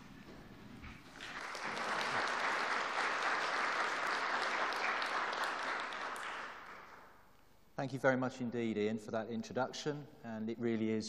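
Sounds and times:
audience applauding: 0:01.0 - 0:07.2.

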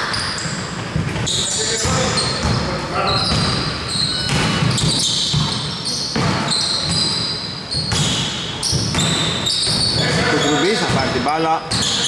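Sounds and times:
basketball bouncing: 0:00.1 - 0:11.1.

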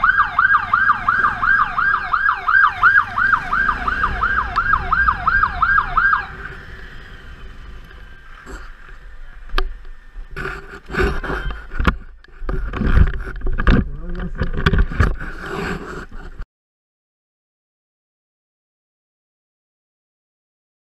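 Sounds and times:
motorcycle siren yelping: 0:00.0 - 0:10.4
low rumble: 0:00.8 - 0:15.4
wind buffeting microphone: 0:02.4 - 0:15.4
rustling and bumps: 0:08.4 - 0:16.4.

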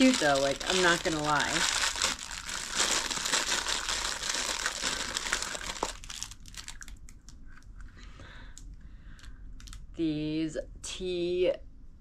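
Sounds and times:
packaging crinkling: 0:00.0 - 0:07.6, 0:09.6 - 0:09.8.

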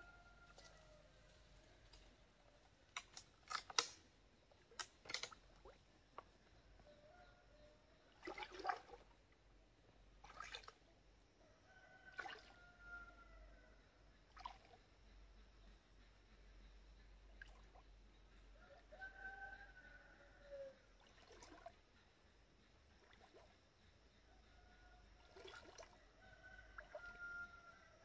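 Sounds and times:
wading through shallow water: 0:08.0 - 0:09.2, 0:10.1 - 0:10.9, 0:25.2 - 0:26.1.

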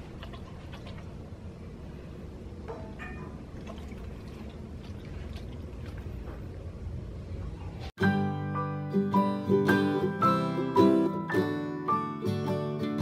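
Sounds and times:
dog lapping water: 0:00.0 - 0:01.3, 0:03.5 - 0:06.6.

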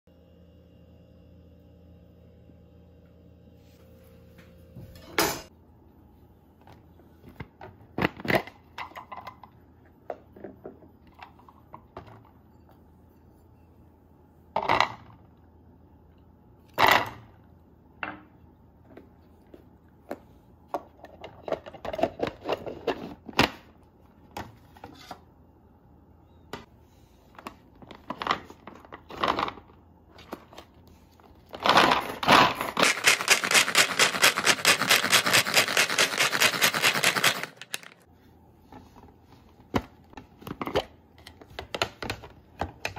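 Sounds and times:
chopper blades rattling: 0:32.8 - 0:38.0.

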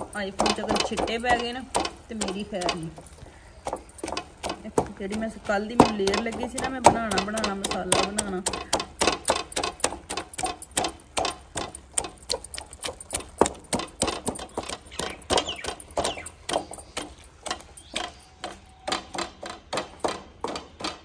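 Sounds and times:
wooden masher knocking in wok: 0:00.0 - 0:03.0, 0:03.6 - 0:21.0.

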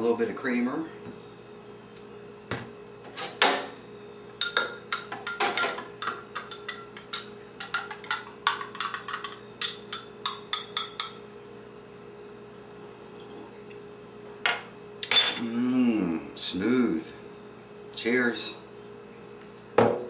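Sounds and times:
spoon clinking in glass: 0:04.4 - 0:11.2.

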